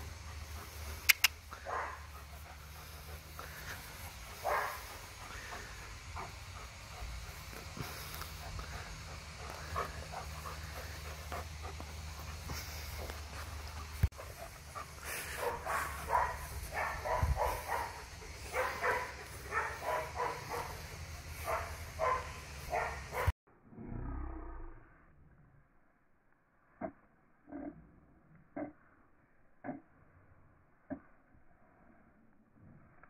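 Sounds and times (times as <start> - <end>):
dogs yipping and barking: 8.4 - 23.3.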